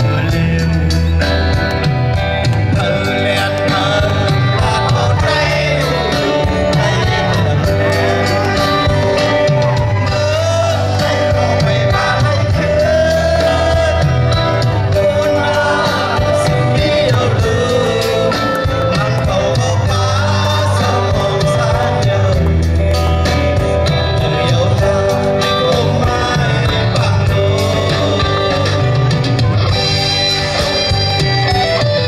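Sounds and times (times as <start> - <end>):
man singing: 0.0 - 30.9
drum kit: 0.0 - 32.0
electric guitar: 0.0 - 32.0.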